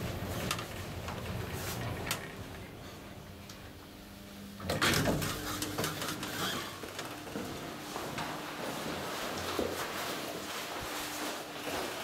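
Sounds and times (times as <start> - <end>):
elevator doors sliding open: 0.0 - 3.2, 4.6 - 7.6
elevator car humming: 0.0 - 9.5.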